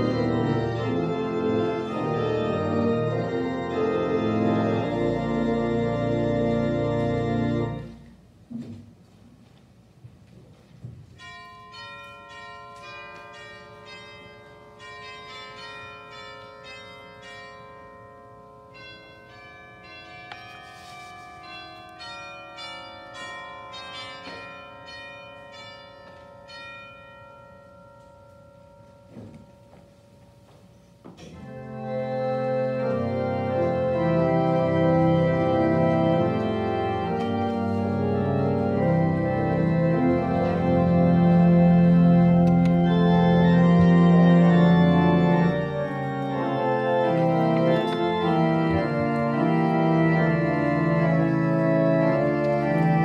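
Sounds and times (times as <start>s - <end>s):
bells ringing a melody: 0.0s - 8.0s, 11.2s - 53.0s
organ chords: 0.0s - 8.2s, 31.3s - 53.0s.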